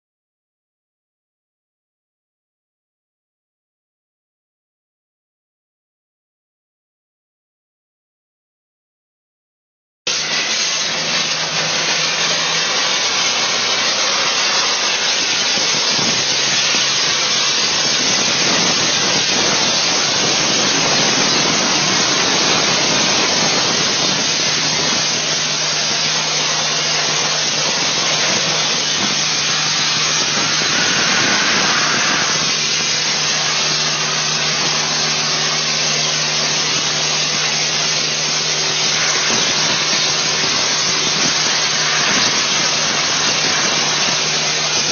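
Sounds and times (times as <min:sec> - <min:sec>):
low machine hum: 0:10.1 - 0:44.9
water jet spraying hiss: 0:10.1 - 0:44.9.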